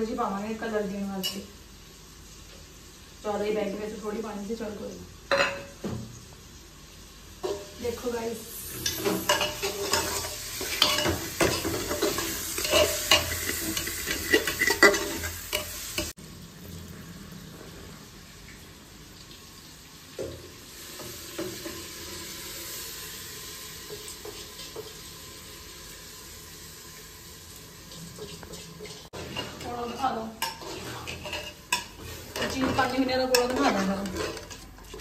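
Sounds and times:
frying sizzle: 0.0s - 35.0s
metal spoon scraping a pot: 8.6s - 16.1s, 28.9s - 35.0s.

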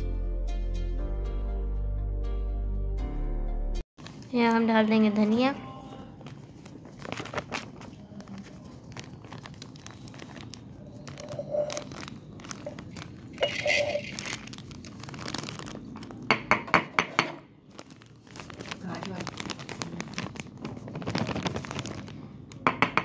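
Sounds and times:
plastic packet crinkling: 6.2s - 16.5s, 17.6s - 22.6s.

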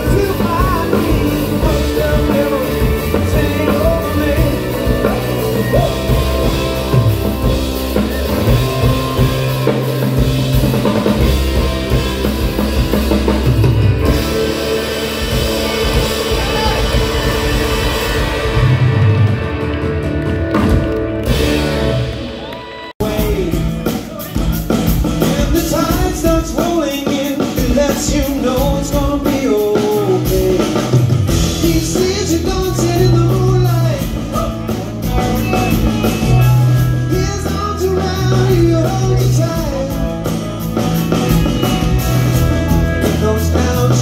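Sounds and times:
person singing lead vocal: 0.0s - 7.0s, 23.0s - 40.6s, 42.6s - 44.0s
live rock band playing: 0.0s - 44.0s.

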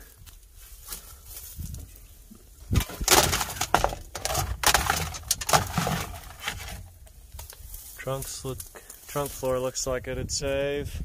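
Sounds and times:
dry leaves crunching: 2.8s - 6.9s.

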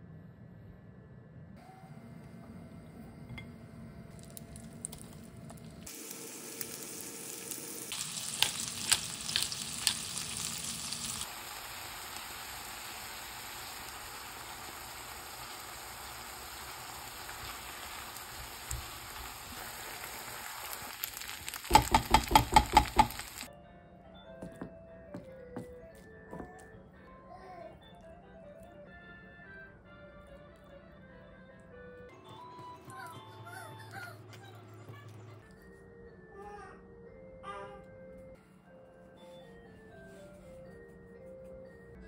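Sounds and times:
food sizzling in a pan: 5.8s - 23.5s.

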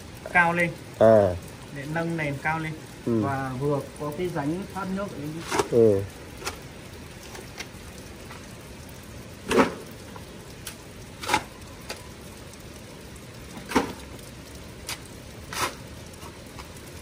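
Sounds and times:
shovel digging into soil: 11.2s - 11.5s, 14.9s - 16.3s.

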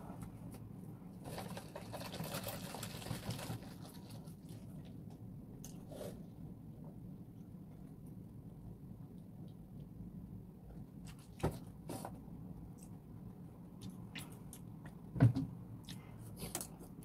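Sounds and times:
mouth chewing crunchy food: 13.7s - 15.0s.

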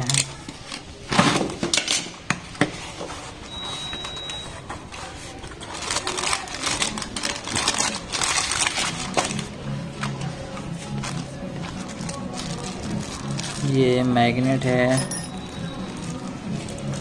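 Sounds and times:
packing paper crinkling: 4.9s - 17.0s
cardboard flaps and plastic bags rustling: 5.0s - 17.0s.

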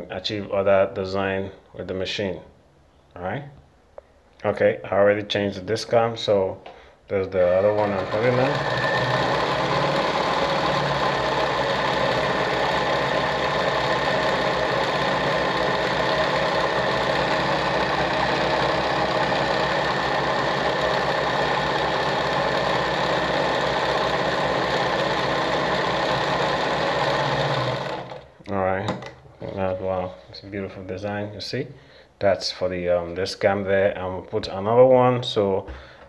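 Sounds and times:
sewing machine running: 7.4s - 28.3s.

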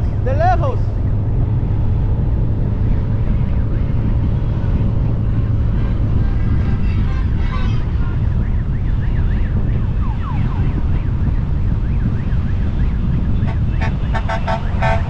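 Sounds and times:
wind and motorcycle engine rumble: 0.0s - 15.0s
warbling siren: 7.8s - 15.0s.

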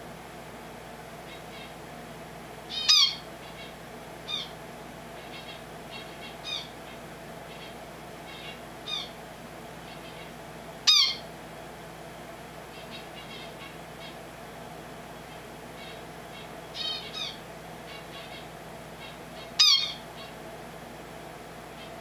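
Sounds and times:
finch calling: 2.7s - 4.6s, 5.2s - 9.2s, 10.9s - 11.3s, 12.7s - 14.2s, 15.8s - 20.4s.

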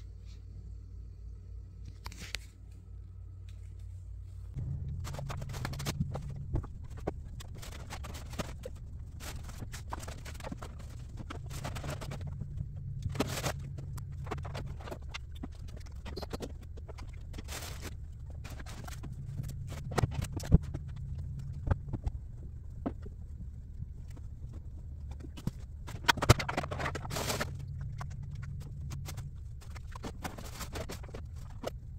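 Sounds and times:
steady low hum: 0.0s - 31.9s
plastic bag rustling: 4.6s - 22.0s, 25.3s - 31.7s
plastic toys clattering: 4.6s - 23.2s, 23.9s - 31.9s.

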